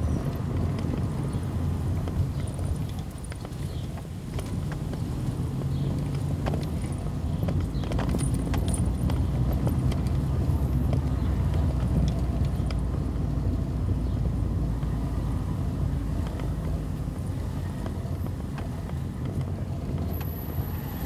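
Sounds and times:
vehicle engine and road rumble: 0:00.0 - 0:21.0
light clicks and rattles: 0:00.1 - 0:14.2.

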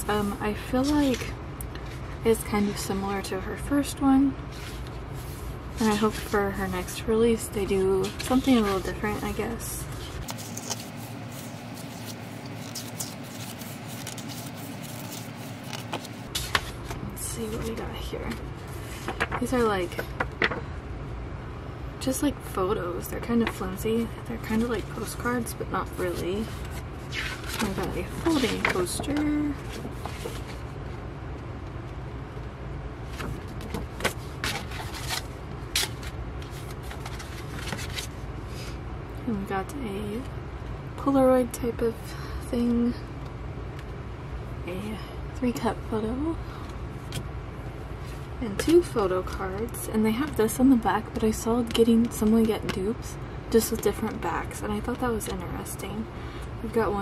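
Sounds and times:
low background hum: 0:00.0 - 0:57.0
pages turning: 0:00.6 - 0:02.2, 0:04.5 - 0:07.0, 0:08.0 - 0:20.1, 0:24.4 - 0:30.7, 0:33.0 - 0:38.2
paper rustling and tapping: 0:08.0 - 0:18.4, 0:19.0 - 0:20.6, 0:26.0 - 0:30.6, 0:33.2 - 0:35.2.

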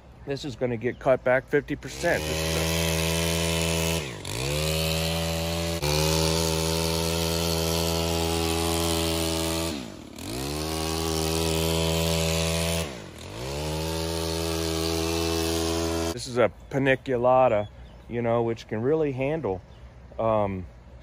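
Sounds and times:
pole trimmer engine revving: 0:01.8 - 0:16.2.

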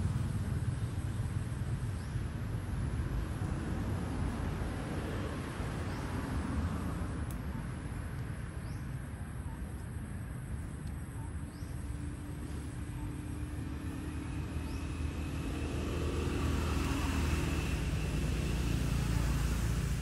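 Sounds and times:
faint high chirp: 0:10.8 - 0:13.5.

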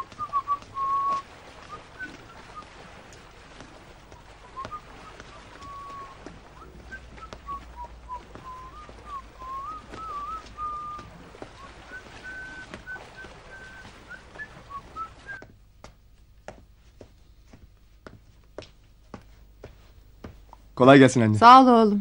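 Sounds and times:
person whistling a tune: 0:00.0 - 0:02.7, 0:04.4 - 0:15.5.

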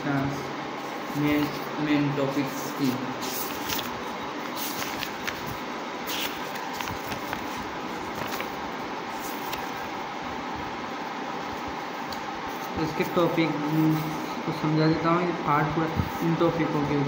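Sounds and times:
paper pages turning: 0:02.3 - 0:09.9.

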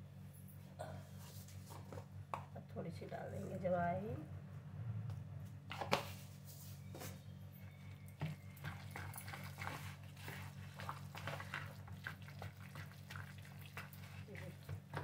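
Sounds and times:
low hum: 0:00.0 - 0:08.6
spoon stirring thick batter: 0:07.8 - 0:15.0.

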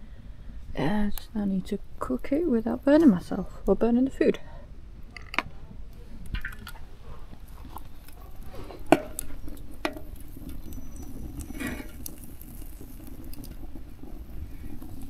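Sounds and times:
fire crackling: 0:00.0 - 0:04.2, 0:05.8 - 0:15.0
pan clanking onto logs: 0:08.7 - 0:10.1.

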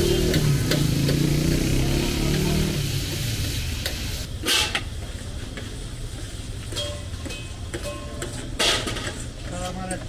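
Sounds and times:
metal utensils clanking: 0:06.8 - 0:09.3.

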